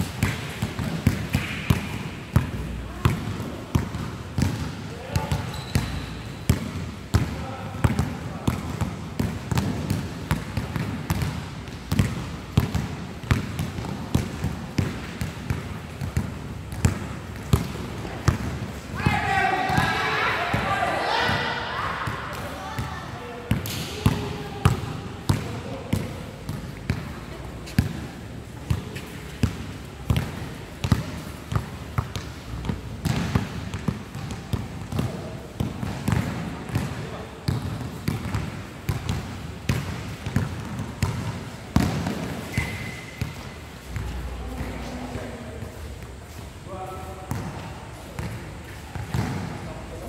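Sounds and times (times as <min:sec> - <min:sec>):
basketball bouncing on hard court: 0:00.1 - 0:19.9, 0:23.5 - 0:28.0, 0:28.7 - 0:43.4, 0:47.3 - 0:47.6, 0:48.9 - 0:49.5.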